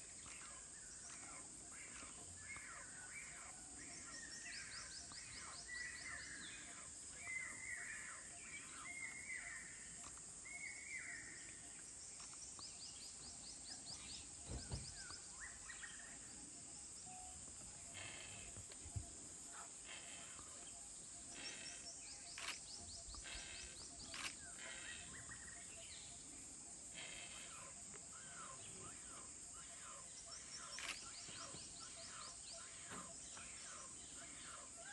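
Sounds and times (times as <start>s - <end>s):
small birds chirping: 17.5s - 26.4s.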